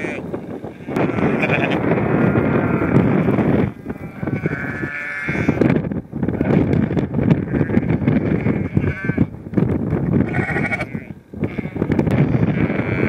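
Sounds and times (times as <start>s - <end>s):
sheep bleating: 0.0s - 5.6s, 7.4s - 9.3s, 10.2s - 13.0s.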